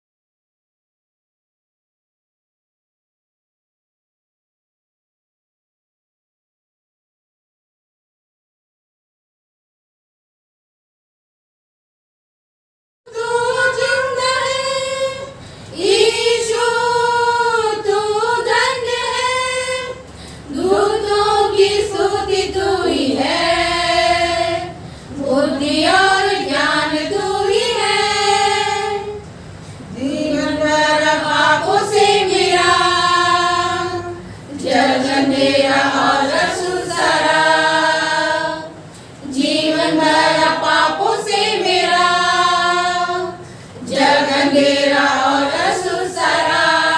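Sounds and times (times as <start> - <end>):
women singing a hymn: 13.1 - 46.9.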